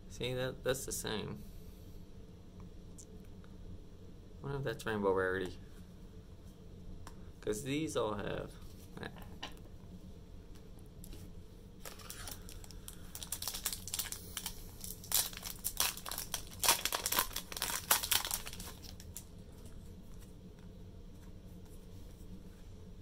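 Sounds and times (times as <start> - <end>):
foil wrapper crinkling and tearing: 11.8 - 19.3.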